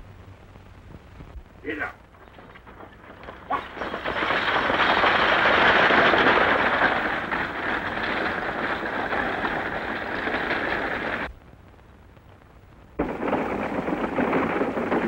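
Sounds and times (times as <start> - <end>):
galloping hooves: 2.0 - 11.3, 13.0 - 15.0
rolling coach wheels: 2.0 - 11.3, 13.0 - 15.0.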